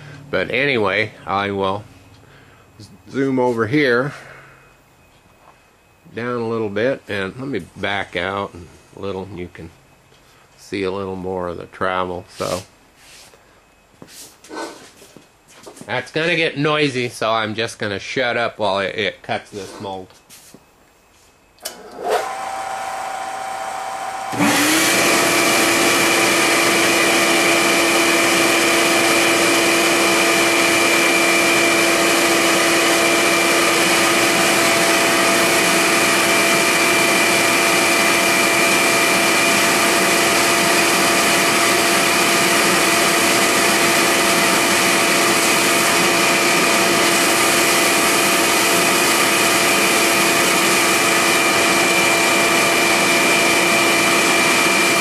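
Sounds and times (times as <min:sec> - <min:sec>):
milling machine running: 0:21.6 - 0:55.0
vacuum running loudly: 0:21.6 - 0:55.0.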